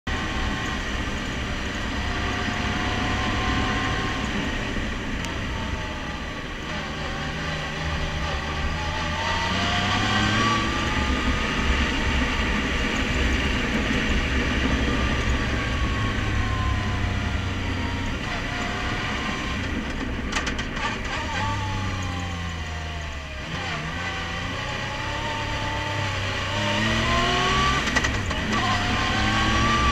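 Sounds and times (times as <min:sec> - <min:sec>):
vehicle engine droning: 0:00.0 - 0:29.9.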